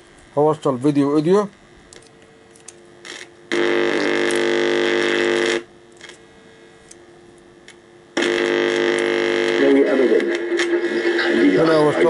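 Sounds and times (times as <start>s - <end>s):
television speaker buzz: 0.0s - 12.0s.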